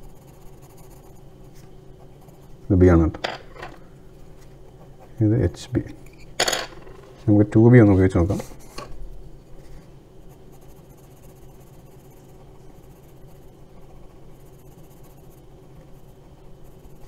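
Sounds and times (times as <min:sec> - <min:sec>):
pencil scratching on paper: 0:00.0 - 0:02.6, 0:09.6 - 0:17.0
faint low hum: 0:00.0 - 0:17.0.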